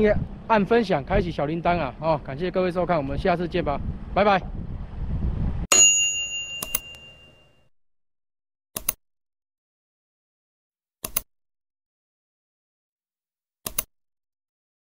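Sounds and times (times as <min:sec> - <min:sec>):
bright ding: 0:05.7 - 0:07.6
short double clicks: 0:08.8 - 0:09.0.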